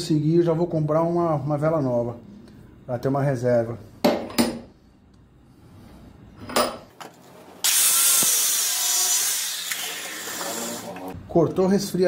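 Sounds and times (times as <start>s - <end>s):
angle grinder cutting metal: 7.6s - 11.1s.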